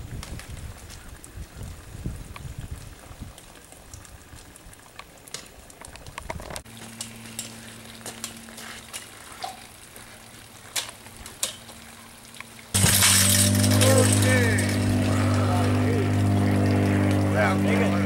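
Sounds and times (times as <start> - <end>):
sharp crackles and clicks: 0.0 - 17.8.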